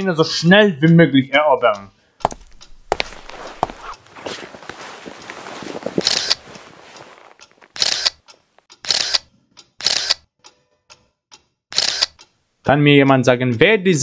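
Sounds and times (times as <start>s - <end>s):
camera shutter click and whir: 7.8s - 8.2s, 8.8s - 10.2s, 11.8s - 12.2s.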